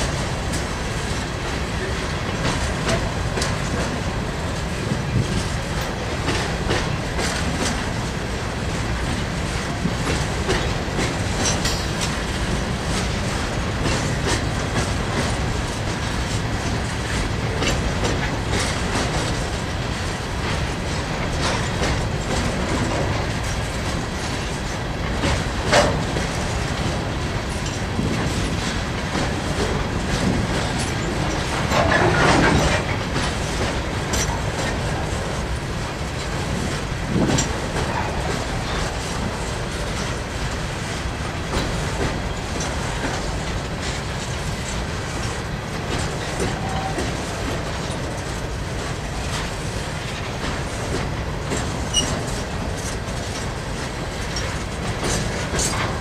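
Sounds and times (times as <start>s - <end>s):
freight train rumbling past: 0.0s - 56.0s
wheels clicking over rail joints: 0.1s - 56.0s.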